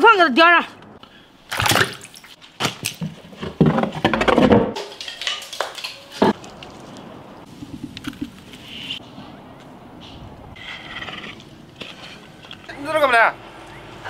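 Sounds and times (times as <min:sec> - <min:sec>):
pots and wood clanking: 0:03.1 - 0:06.4.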